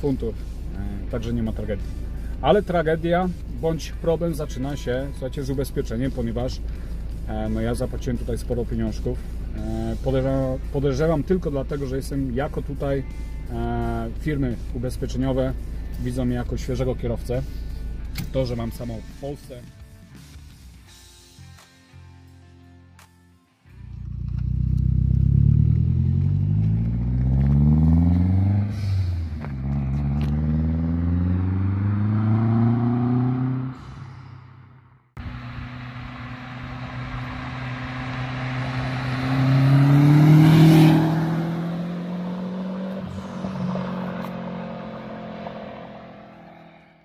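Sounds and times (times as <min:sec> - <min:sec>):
car engine accelerating hard: 0:23.9 - 0:34.3, 0:35.2 - 0:47.0
car passing with a whoosh: 0:24.8 - 0:47.0.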